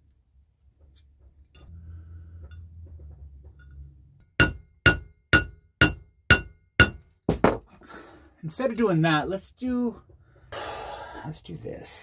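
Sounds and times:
hammer striking metal: 0:04.2 - 0:07.1.

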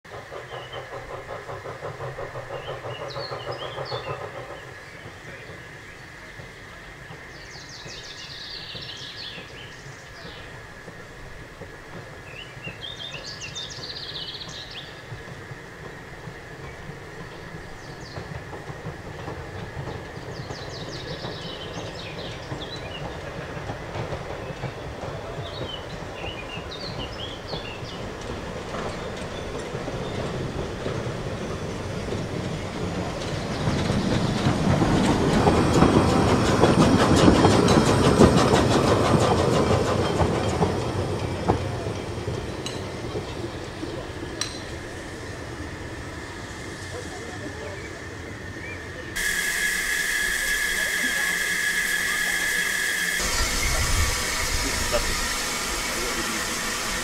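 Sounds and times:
rapid rhythmic train clatter: 0:00.0 - 0:57.0
steam train passing: 0:00.0 - 0:57.0
birds chirping: 0:00.3 - 0:10.6, 0:12.1 - 0:16.0, 0:16.6 - 0:23.6.

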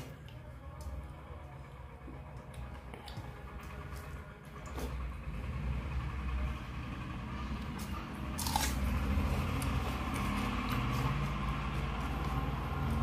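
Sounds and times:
chewing food: 0:01.8 - 0:05.1, 0:07.6 - 0:13.0.

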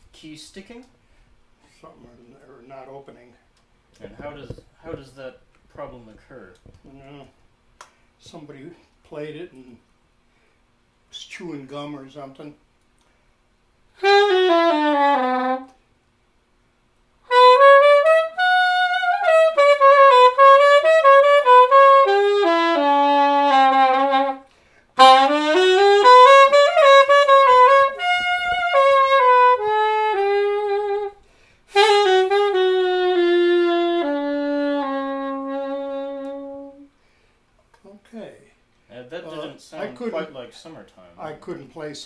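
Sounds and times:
soprano saxophone slow melody: 0:14.0 - 0:15.8, 0:17.3 - 0:37.0.

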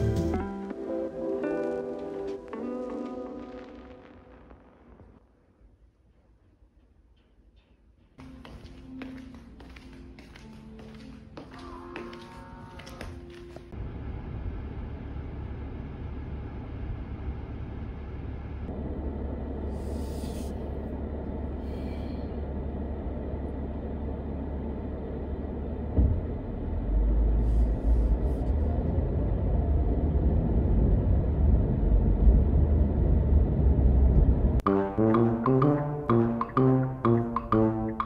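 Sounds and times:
road rumble: 0:09.5 - 0:38.0
low engine rumble: 0:13.0 - 0:38.0.

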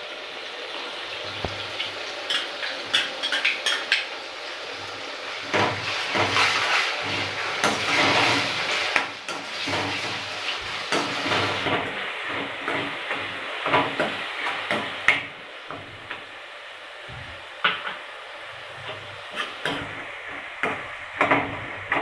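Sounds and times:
onions sizzling in hot oil: 0:00.0 - 0:22.0
steel spoon scraping a pan: 0:02.2 - 0:04.0, 0:18.8 - 0:19.9.

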